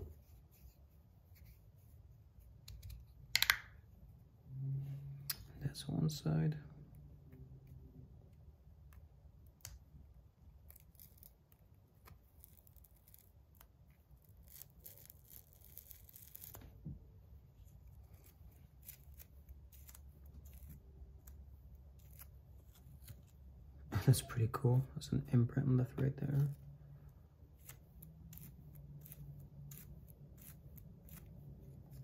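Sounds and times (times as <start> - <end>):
grip tape peeling: 10.6 - 16.7, 17.6 - 23.4, 27.5 - 32.0.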